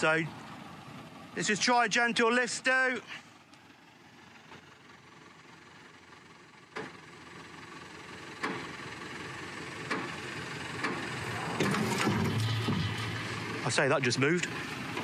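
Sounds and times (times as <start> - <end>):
lifting machine engine running: 8.4 - 15.0
sharp metallic knocks: 10.8 - 13.5.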